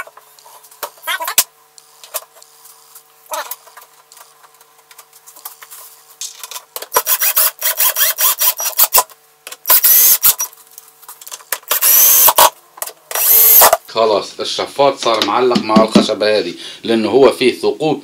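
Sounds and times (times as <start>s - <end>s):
cordless drill motor whining: 7.0s - 9.0s, 9.6s - 10.4s, 11.7s - 12.5s, 13.2s - 13.8s.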